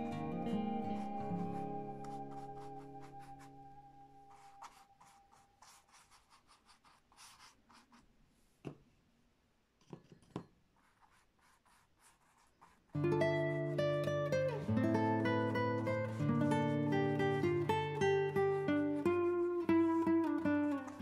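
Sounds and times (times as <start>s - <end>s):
background music note: 0.0s - 5.5s
brush scrubbing paint on canvas: 0.8s - 8.6s, 10.8s - 13.0s, 18.4s - 21.0s.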